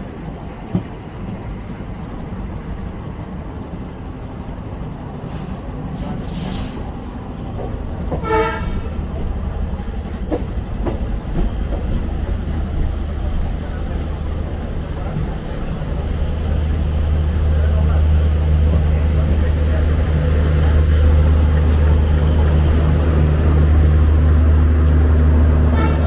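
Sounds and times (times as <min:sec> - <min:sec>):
diesel locomotive chugging: 0:00.0 - 0:26.0
train horn blast: 0:08.2 - 0:08.9, 0:25.7 - 0:26.0.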